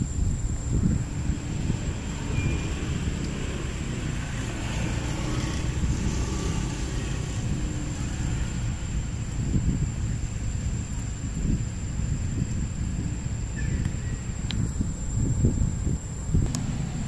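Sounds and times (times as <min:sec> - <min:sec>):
thin high whine: 0:00.0 - 0:07.4
low outdoor rumble: 0:00.0 - 0:17.0.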